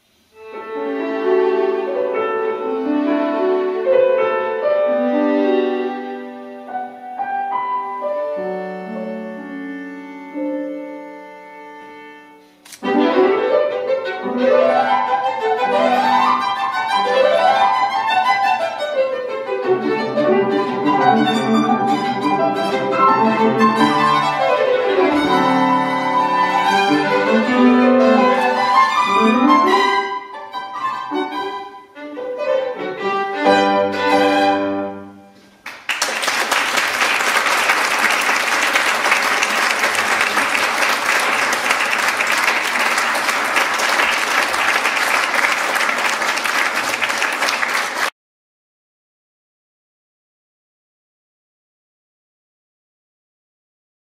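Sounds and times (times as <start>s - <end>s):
violin and piano playing: 0.3s - 35.3s
audience applause: 35.6s - 48.1s.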